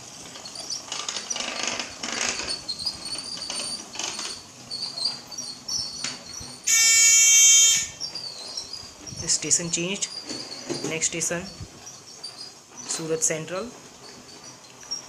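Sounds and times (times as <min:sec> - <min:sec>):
toy train clattering on track: 0:00.0 - 0:15.0
electronic buzzer beep: 0:06.7 - 0:08.0.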